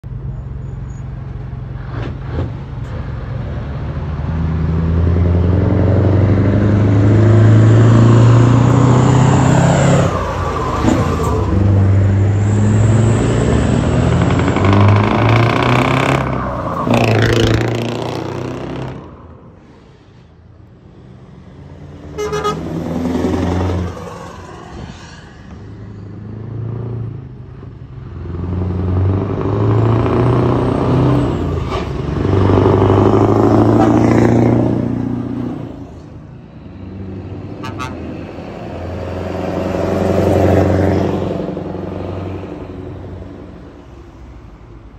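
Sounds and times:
heavy trucks driving past: 0.0s - 44.9s
truck horns blasting: 22.1s - 23.6s, 37.5s - 38.3s.

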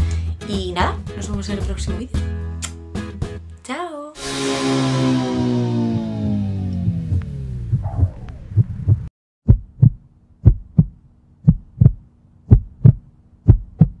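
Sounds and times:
music sliding down in pitch: 4.2s - 7.8s
heartbeat thumps: 7.0s - 14.0s.

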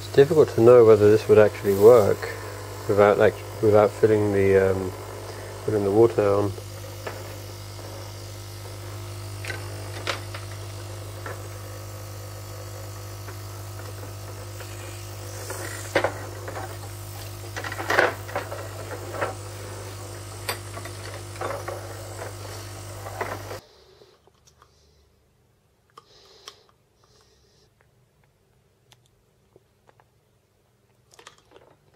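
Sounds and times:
air pump buzzing: 0.0s - 24.0s.

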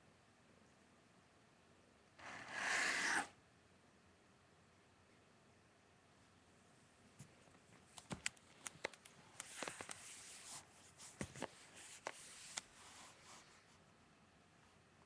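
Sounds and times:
rustling and rubbing: 8.6s - 13.8s.

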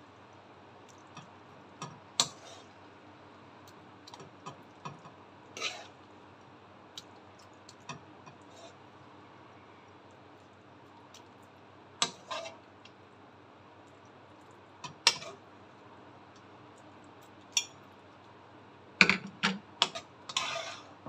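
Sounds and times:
spoon clinking and scraping pan: 19.8s - 20.9s.

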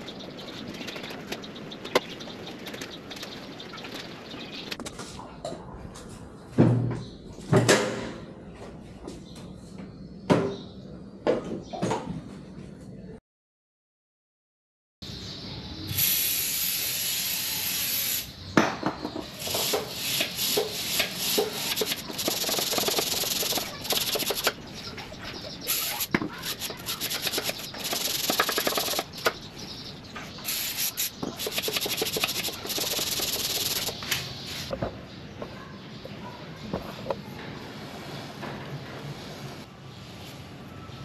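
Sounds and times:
aerosol spray hissing: 19.4s - 24.5s, 25.7s - 29.0s, 30.5s - 34.0s
clicks and rattles: 26.0s - 29.4s, 31.3s - 34.1s.

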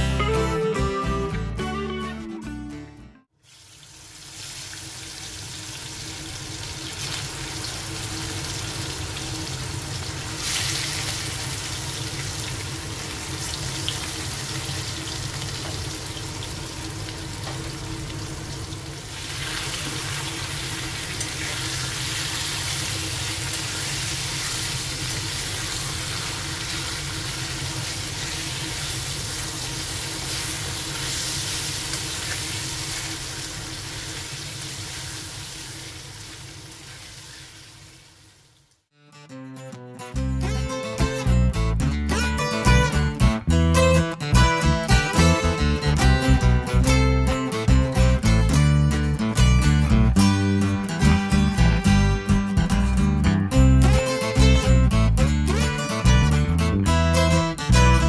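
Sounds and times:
chicken sizzling in hot oil: 3.4s - 38.8s.

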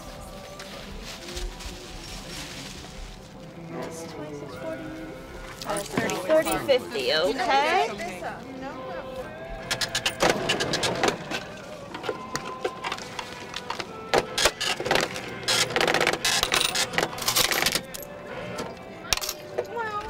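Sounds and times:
cash register clicks: 9.7s - 11.2s.

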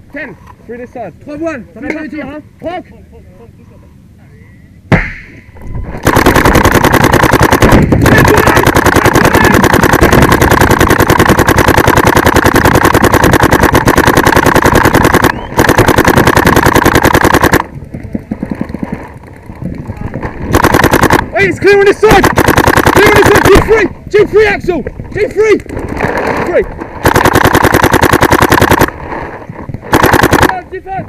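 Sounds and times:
paintball marker rapid firing: 5.9s - 19.8s, 20.4s - 23.8s, 27.0s - 29.2s, 29.8s - 30.6s.

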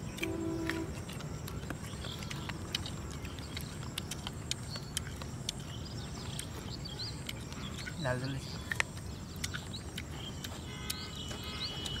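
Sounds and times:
birds chirping faintly: 0.0s - 12.0s
chewing and lip-smacking: 0.0s - 12.0s.

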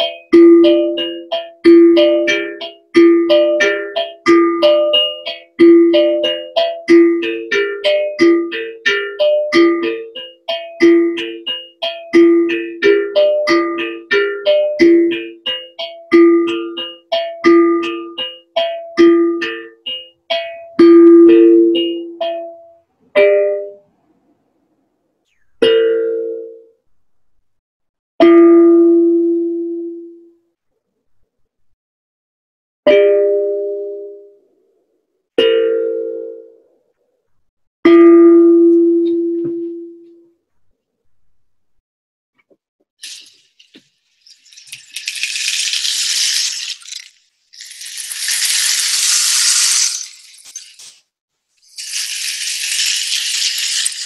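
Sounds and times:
rainstick pebbles trickling: 43.0s - 51.0s, 51.6s - 54.0s.

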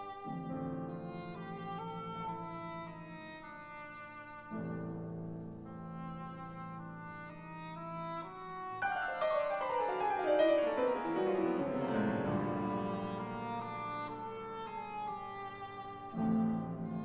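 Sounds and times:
symphony orchestra playing: 8.8s - 14.5s.

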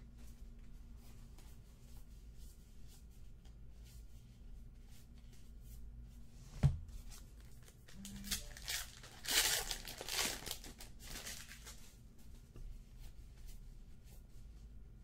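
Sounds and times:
thump: 6.6s - 6.9s
card pack wrapper tearing: 8.0s - 11.7s.

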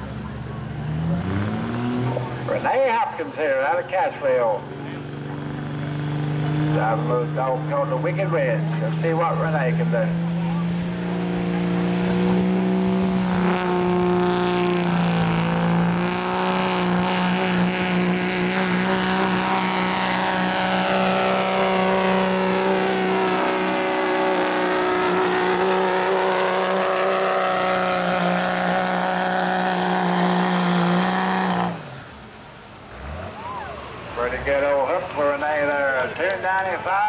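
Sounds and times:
diesel truck engine under full load: 0.0s - 37.0s.

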